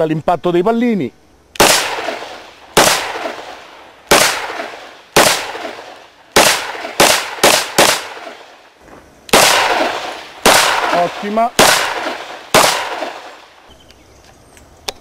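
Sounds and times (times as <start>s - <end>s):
pistol shots with echo: 1.6s - 8.6s, 9.3s - 13.6s.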